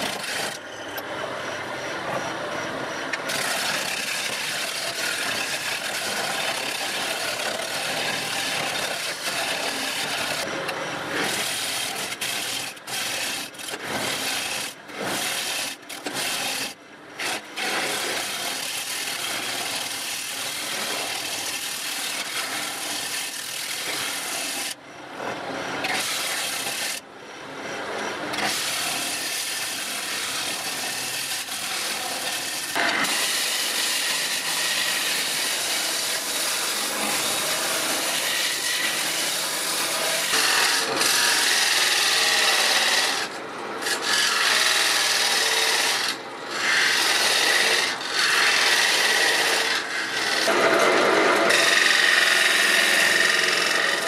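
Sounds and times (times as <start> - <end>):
gouge scraping spinning wood: 0.0 - 0.7, 3.0 - 24.8, 25.5 - 27.0, 27.7 - 54.0.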